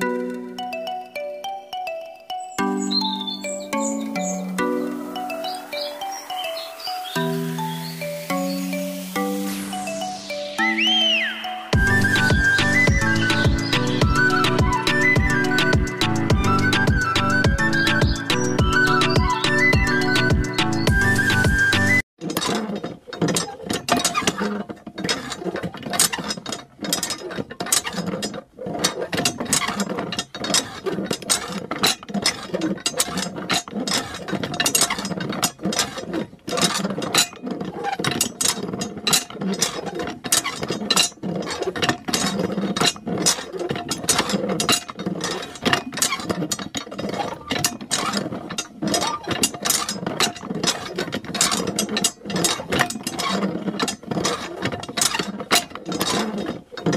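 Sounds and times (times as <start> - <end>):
hand pump clicking and rattling: 11.9 - 21.6, 22.2 - 56.9.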